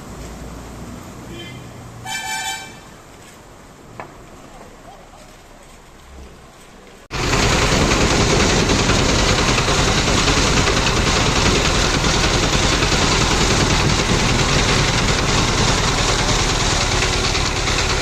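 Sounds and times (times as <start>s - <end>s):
engine running with rattling pulse: 7.1s - 18.0s.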